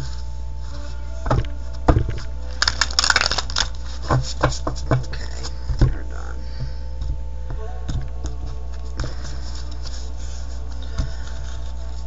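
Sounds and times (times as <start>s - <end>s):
cards riffle shuffling: 2.6s - 4.5s.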